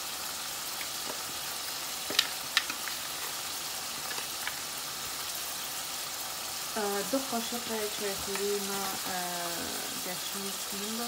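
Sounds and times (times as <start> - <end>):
meat sizzling in frying pan: 0.0 - 11.0.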